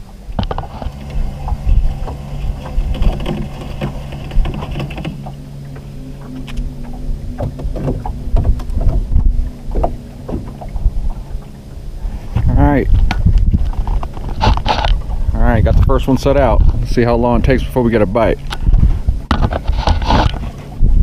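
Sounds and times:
boat motor humming: 0:00.0 - 0:21.0
knocks and clicks of fishing gear: 0:00.4 - 0:11.0, 0:12.4 - 0:15.1, 0:18.4 - 0:20.7.

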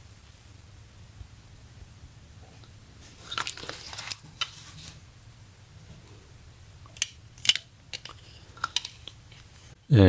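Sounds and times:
sunglasses and tag clicks and crinkles: 0:03.0 - 0:05.0, 0:06.8 - 0:09.8.

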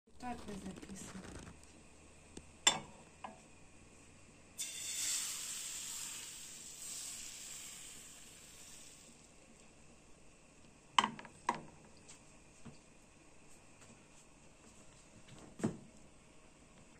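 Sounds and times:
batter sizzling in a hot pan: 0:04.6 - 0:09.4.

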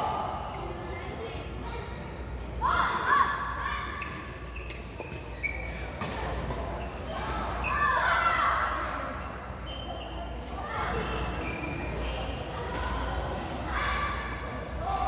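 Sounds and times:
shoes squeaking on court: 0:03.8 - 0:08.0, 0:09.1 - 0:12.6.

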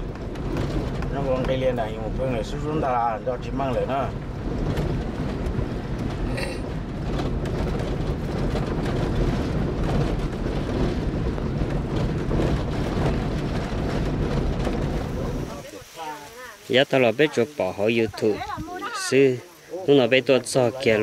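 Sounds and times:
small knocks and rattles: 0:00.0 - 0:02.6, 0:03.4 - 0:15.4
engine and tyres rumbling: 0:00.0 - 0:21.0.

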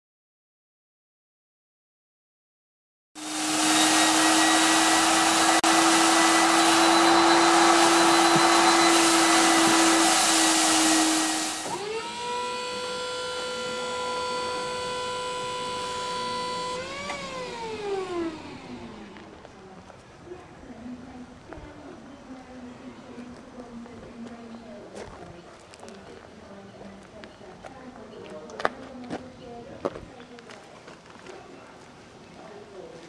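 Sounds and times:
industrial vacuum cleaner running: 0:03.2 - 0:19.6.

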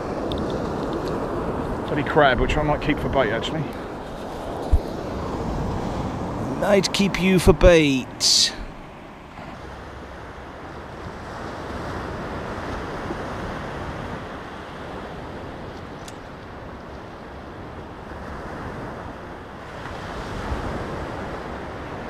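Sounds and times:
surf breaking on beach: 0:00.0 - 0:10.0
small click: 0:15.8 - 0:16.3.

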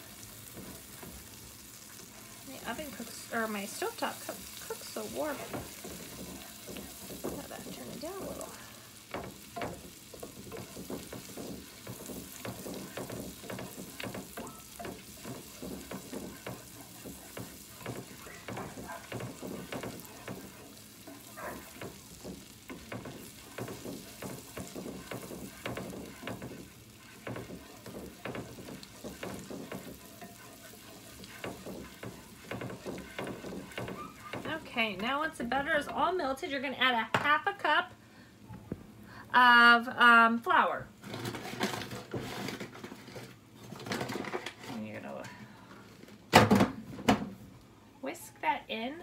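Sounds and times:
utensil scraping a pan: 0:00.0 - 0:35.2, 0:41.0 - 0:46.1
butter sizzling in a skillet: 0:00.0 - 0:36.7.

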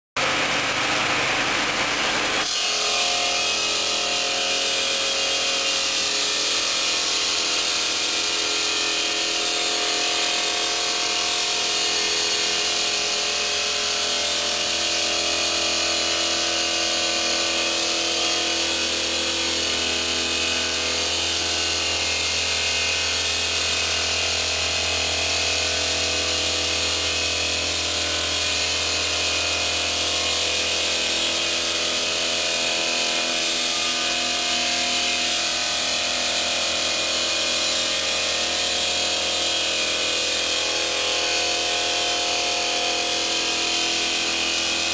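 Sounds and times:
blade motor hum: 0:00.2 - 0:08.0
saw cutting stone: 0:00.2 - 0:44.9.

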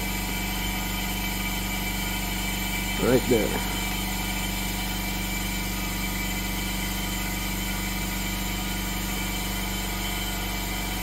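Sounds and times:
machine humming: 0:02.7 - 0:06.4.

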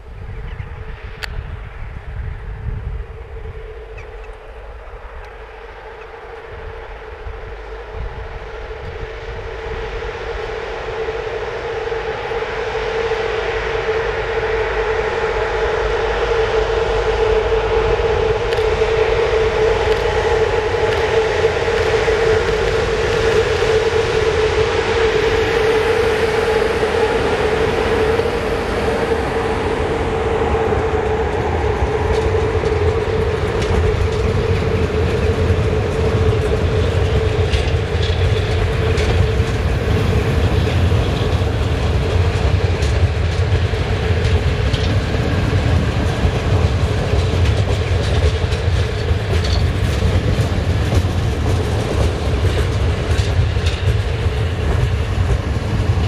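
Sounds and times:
electric locomotive hum: 0:00.0 - 0:56.0
train coaches rumbling: 0:00.0 - 0:56.0
wheels clicking over rail joints: 0:31.4 - 0:56.0.

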